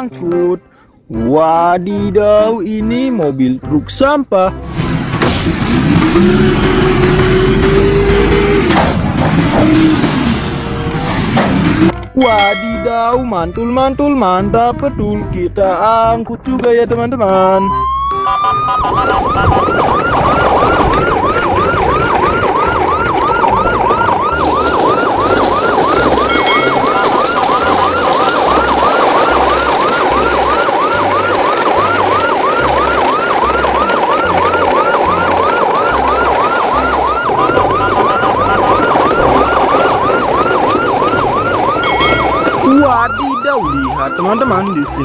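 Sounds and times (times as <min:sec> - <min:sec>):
electronic siren yelping: 0:11.8 - 0:13.7, 0:17.6 - 0:45.0.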